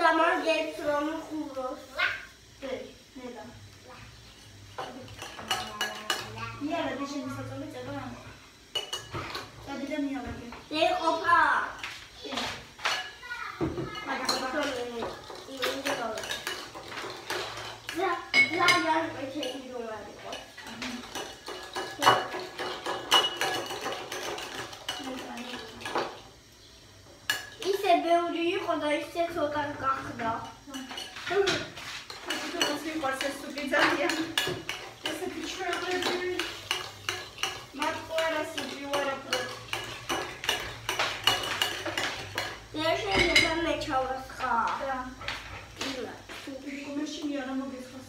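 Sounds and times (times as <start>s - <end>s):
spoon clinking in a bowl: 8.7s - 9.4s, 20.3s - 26.0s, 38.5s - 43.6s.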